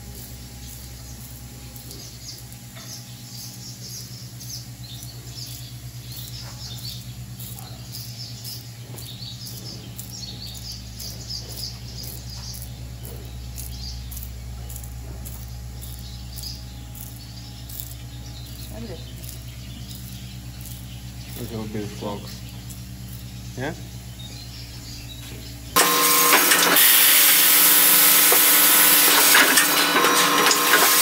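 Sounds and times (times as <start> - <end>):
birds chirping: 0.0 - 31.0
low machine hum: 0.0 - 31.0.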